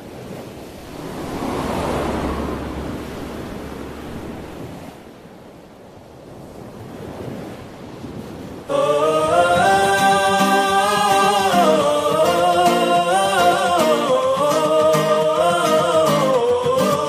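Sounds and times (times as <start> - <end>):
ocean surf: 0.0 - 17.0
wind: 0.0 - 17.0
low steady hum: 0.7 - 5.5.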